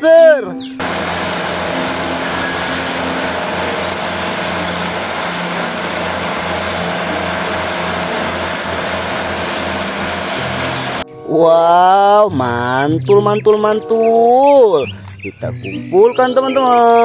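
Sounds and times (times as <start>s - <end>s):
bulldozer engine and tracks: 0.8s - 11.0s
thin high whine: 0.8s - 11.1s.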